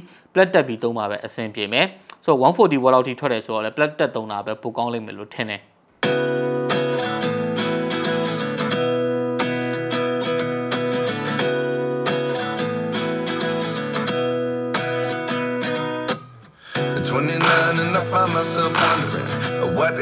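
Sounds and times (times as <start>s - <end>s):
acoustic guitar strumming music: 6.0s - 20.0s.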